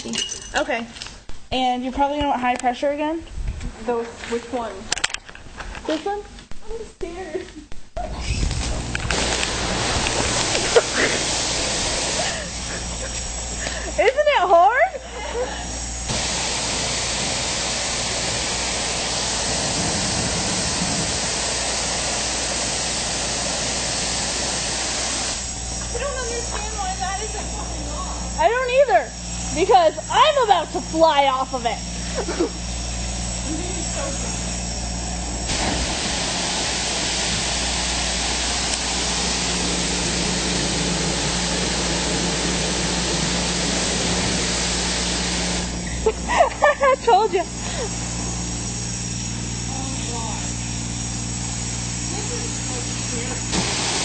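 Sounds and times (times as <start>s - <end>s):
low hum: 4.8s - 53.9s
high-pressure water spray: 8.6s - 14.4s, 15.9s - 28.6s, 35.4s - 46.0s, 47.5s - 54.0s.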